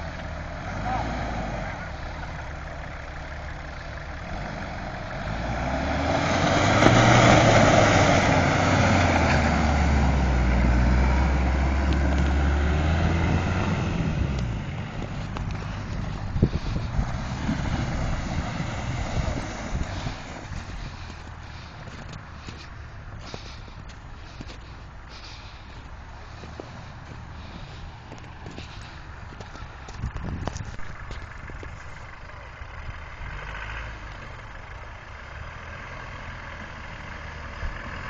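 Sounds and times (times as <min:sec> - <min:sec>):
car engine driving past: 0:03.9 - 0:30.0.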